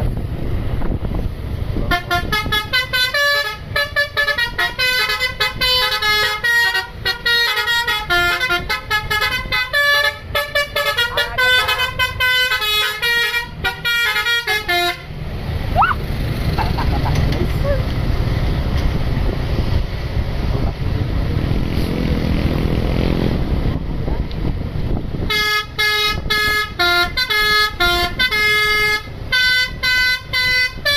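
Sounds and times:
low engine and wind rumble: 0.0s - 30.9s
bus horn playing melody: 1.8s - 15.2s, 25.2s - 30.9s.

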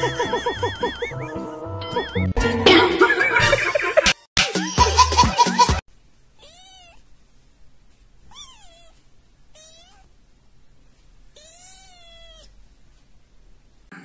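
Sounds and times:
kitten meowing: 6.4s - 7.0s, 8.3s - 10.1s, 11.4s - 12.5s.

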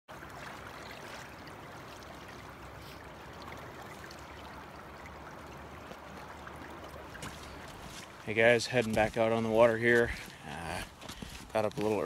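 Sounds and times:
river water rushing: 0.1s - 12.0s.

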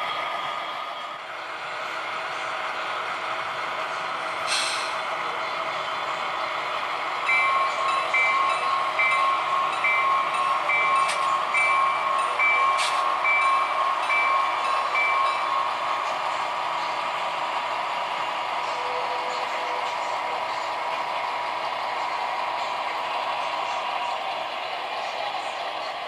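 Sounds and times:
model train running noise: 0.0s - 26.0s
bell ringing: 7.3s - 16.0s.

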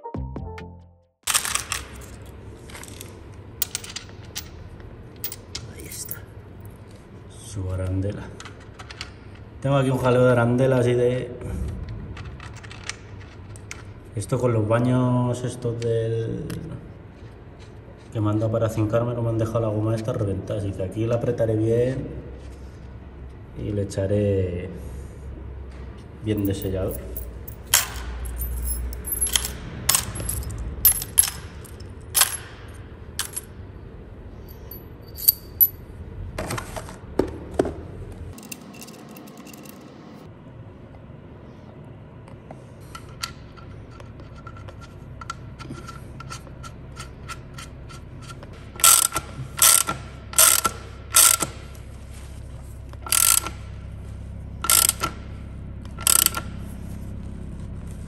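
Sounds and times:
metal clicks of tools: 38.3s - 39.8s, 42.9s - 51.6s, 53.0s - 53.6s, 54.6s - 55.2s, 55.9s - 56.5s
ratchet wrench clicking: 45.8s - 51.6s, 53.0s - 53.7s, 54.6s - 55.2s, 55.9s - 56.5s.

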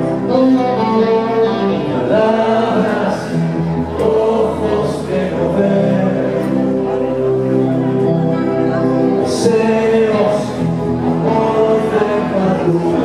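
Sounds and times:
live rock band playing: 0.0s - 13.0s
person singing: 0.0s - 13.0s.

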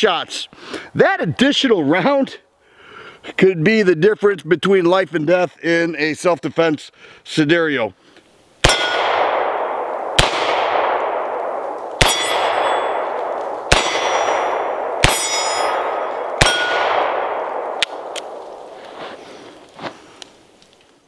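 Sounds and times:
steel plate target clanging: 8.7s - 9.2s, 12.0s - 17.2s.

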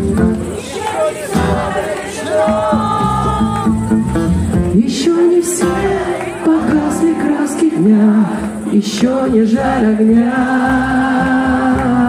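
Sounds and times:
strummed acoustic guitar: 0.0s - 12.0s
woman singing: 4.6s - 12.0s.

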